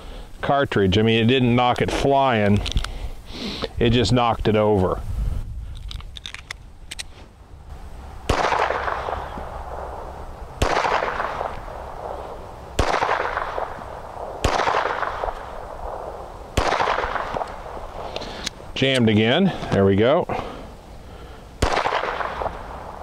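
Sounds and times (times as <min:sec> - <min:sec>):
pistol shots: 0:08.3 - 0:10.0, 0:10.6 - 0:12.2, 0:12.8 - 0:17.8, 0:21.6 - 0:22.8.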